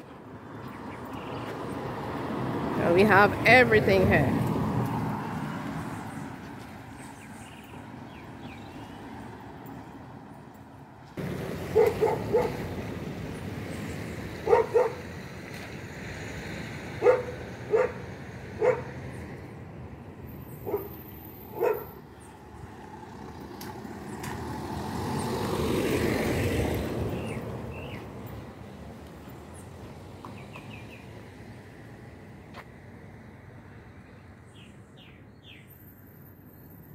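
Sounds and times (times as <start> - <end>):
vehicle passing: 0.0 - 34.1
outdoor background noise: 0.0 - 36.9
dog barking: 11.7 - 12.6, 14.4 - 15.0, 17.0 - 19.0, 20.6 - 22.0.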